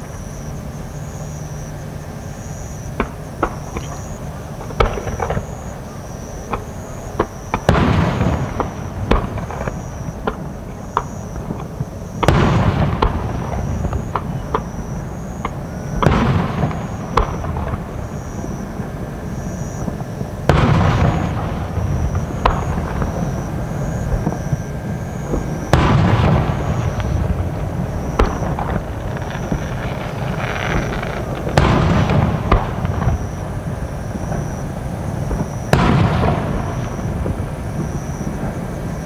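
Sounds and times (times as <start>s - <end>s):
firework shells bursting: 28.1s - 33.3s
firework cracks and pops: 28.1s - 33.5s.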